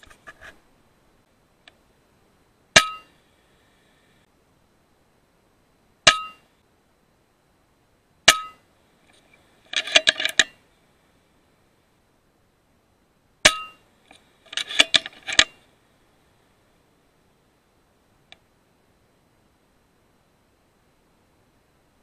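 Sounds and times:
air rifle shot with metallic ring: 2.8s - 3.2s, 6.1s - 6.4s, 8.3s - 8.6s, 13.4s - 13.8s.

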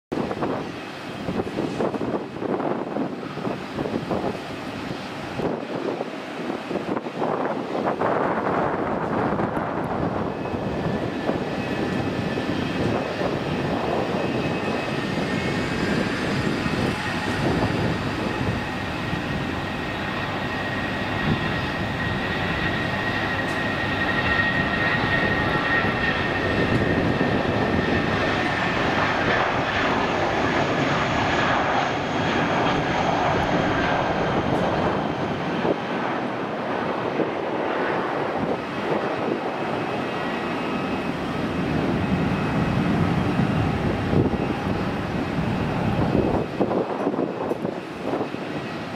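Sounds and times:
jet engine roar with fan whine: 0.1s - 48.9s.

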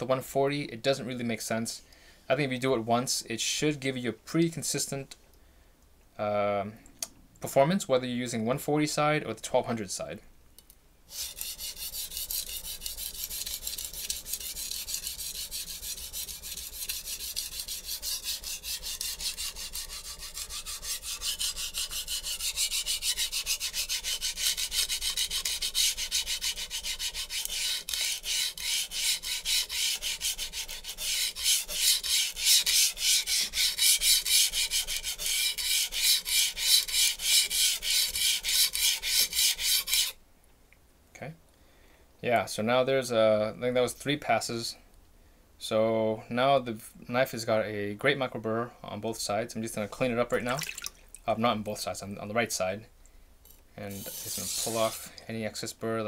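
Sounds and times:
knife scraping on sharpening stone: 11.1s - 40.1s, 53.5s - 55.1s.

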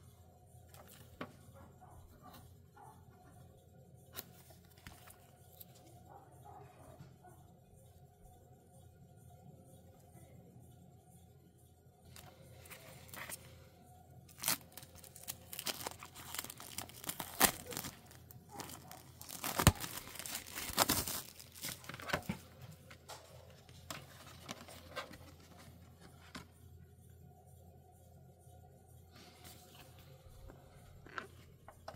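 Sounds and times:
plastic wrap crinkling: 14.3s - 22.6s.

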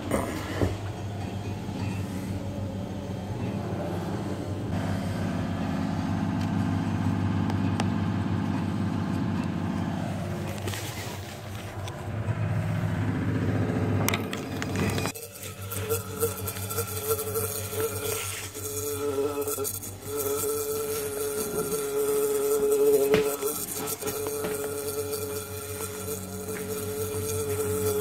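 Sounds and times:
bumblebee buzzing in a glass: 14.8s - 28.0s.

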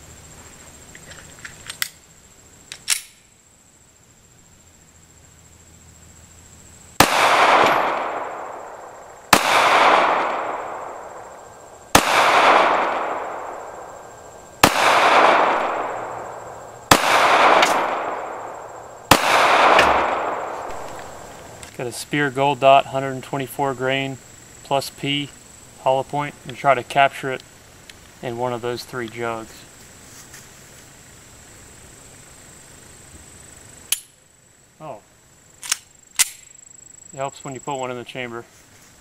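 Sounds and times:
pistol shots with echo: 7.0s - 11.3s, 11.9s - 13.9s, 14.6s - 21.3s.

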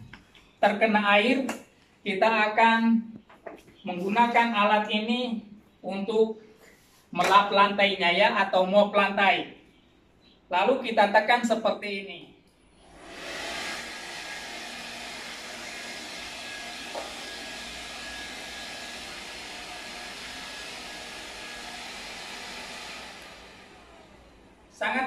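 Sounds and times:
cordless vacuum motor running: 12.8s - 24.8s.

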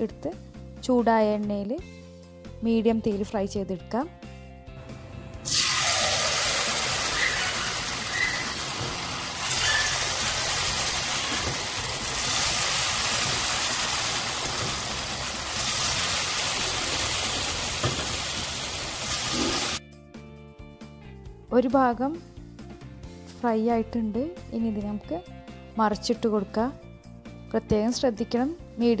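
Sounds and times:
food deep-frying in hot oil: 5.5s - 19.8s.

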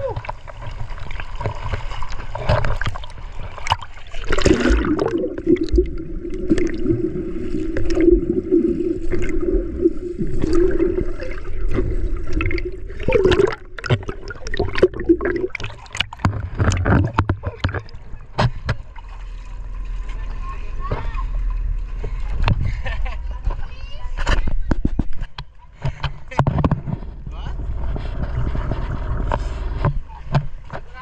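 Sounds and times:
water splashing around swimmer: 0.0s - 23.0s
underwater hum and gurgling: 0.0s - 31.0s.

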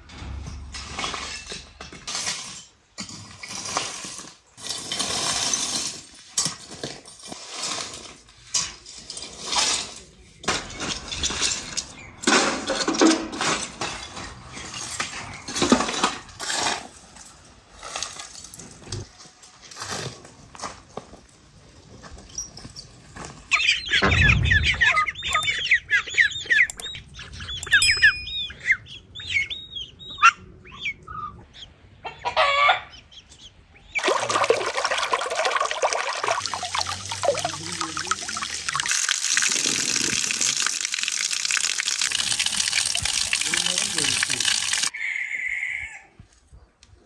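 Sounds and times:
birds chirping: 23.5s - 32.3s
low thump: 23.9s - 25.8s
water pouring and splashing: 34.0s - 44.9s.

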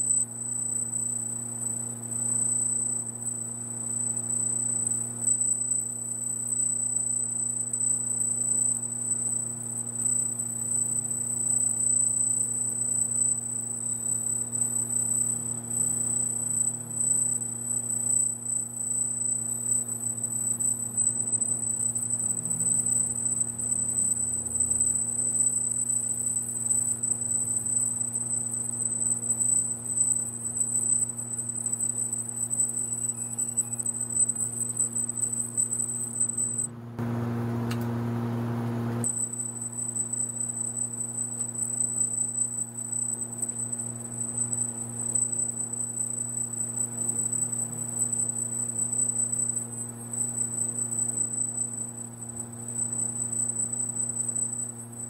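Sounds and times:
laser marking machine whine: 0.0s - 55.0s
low steady hum: 36.6s - 39.1s.

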